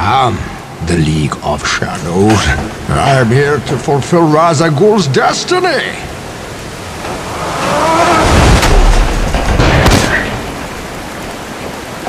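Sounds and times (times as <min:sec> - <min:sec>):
water pouring and splashing: 0:05.0 - 0:12.0.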